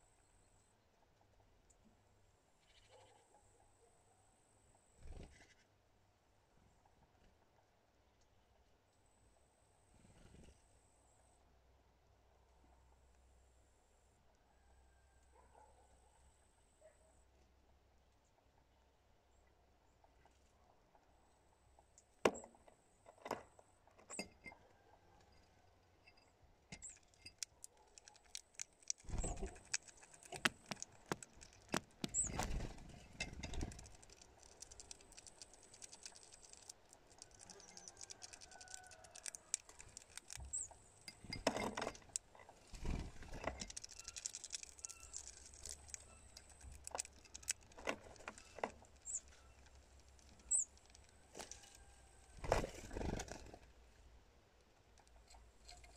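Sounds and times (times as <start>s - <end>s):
high bird peeps: 28.8s - 32.6s, 33.8s - 41.2s, 43.8s - 47.7s, 49.0s - 49.6s, 50.2s - 51.0s.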